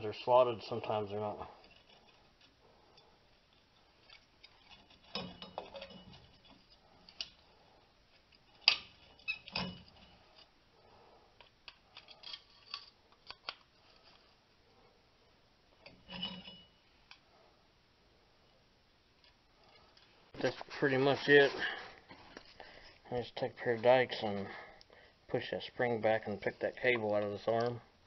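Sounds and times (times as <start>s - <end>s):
hand tool clanking on steel: 4.1s - 7.3s.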